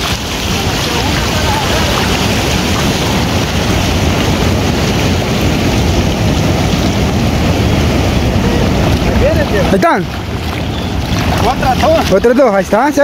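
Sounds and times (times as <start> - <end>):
shallow surf rushing: 0.0 - 13.0
wind buffeting microphone: 0.0 - 13.0.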